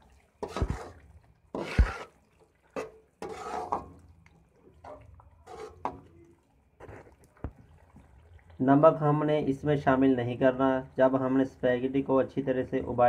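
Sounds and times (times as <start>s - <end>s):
wet sloppy stirring noises: 0.0s - 13.0s
metal spoon scraping a wok: 0.4s - 2.1s, 2.8s - 4.0s, 4.8s - 6.1s.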